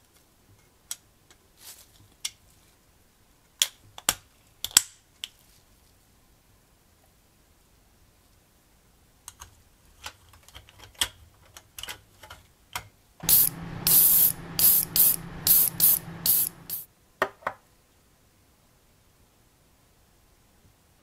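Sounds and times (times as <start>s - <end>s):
steady low hum: 13.2s - 16.8s
hissing spray bursts: 13.2s - 16.9s.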